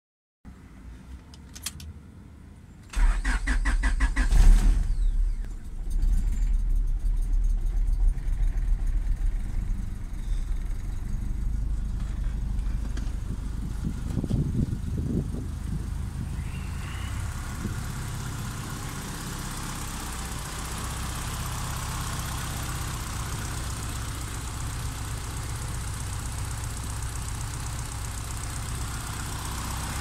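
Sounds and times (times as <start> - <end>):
engine starter cranking: 2.9 - 8.8
car engine idling: 2.9 - 30.0.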